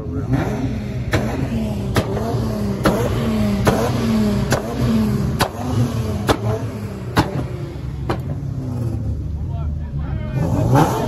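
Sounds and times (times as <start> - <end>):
car engines revving: 0.0 - 11.0
sharp cracks: 1.1 - 7.5.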